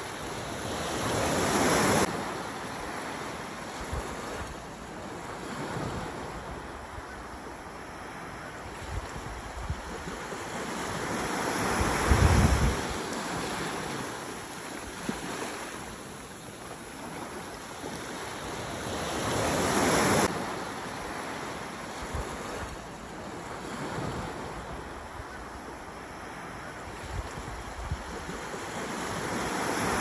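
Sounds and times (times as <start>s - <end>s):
small waves washing on sand: 0.0s - 30.0s
wind buffeting microphone: 11.6s - 13.0s.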